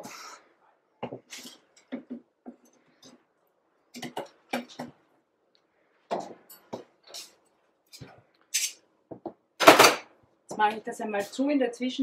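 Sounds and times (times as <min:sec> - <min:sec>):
metal utensils clicking and scraping: 0:06.5 - 0:08.8.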